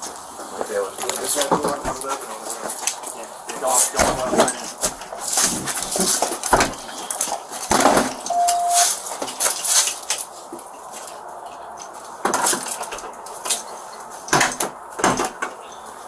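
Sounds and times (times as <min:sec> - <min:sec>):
short steady beep: 0:08.3 - 0:08.9.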